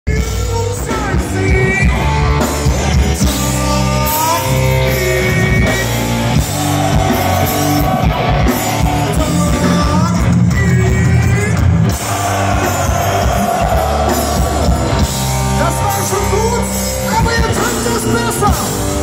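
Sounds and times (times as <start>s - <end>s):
bass guitar: 0.0s - 19.0s
drums: 0.0s - 19.0s
person singing: 0.1s - 8.1s, 8.8s - 11.6s
electric guitars: 0.1s - 19.0s.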